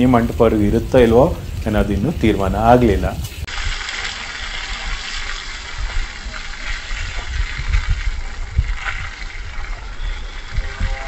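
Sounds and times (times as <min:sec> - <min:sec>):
hose water spraying and splashing: 0:00.0 - 0:11.0
wind buffeting microphone: 0:04.5 - 0:11.0.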